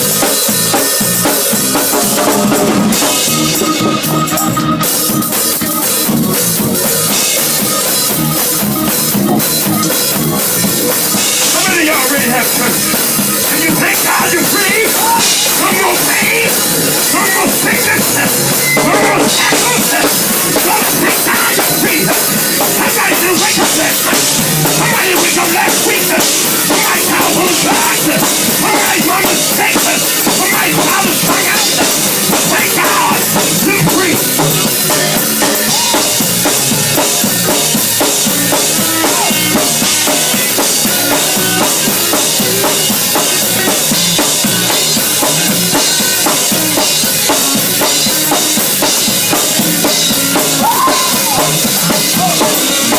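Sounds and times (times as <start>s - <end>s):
drum kit beat: 0.0s - 52.9s
gospel band music: 0.0s - 52.9s.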